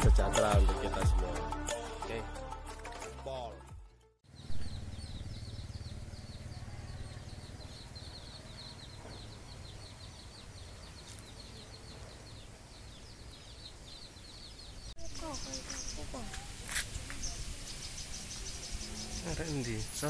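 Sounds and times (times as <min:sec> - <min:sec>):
birds chirping high ticking calls: 0:04.3 - 0:20.0.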